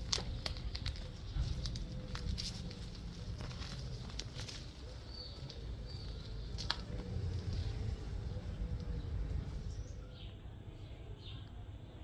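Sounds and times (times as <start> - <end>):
light crackles and rustles: 0.0 - 9.5.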